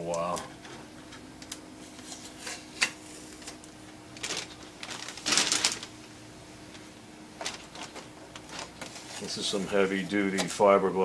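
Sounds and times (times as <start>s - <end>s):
packing tape crinkling: 1.4s - 6.1s, 7.4s - 9.6s.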